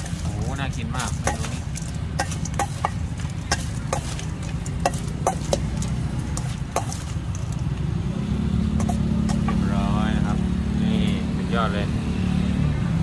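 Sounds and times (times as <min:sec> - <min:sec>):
metal spoon scraping metal bowl: 0:00.0 - 0:07.6, 0:08.8 - 0:09.6.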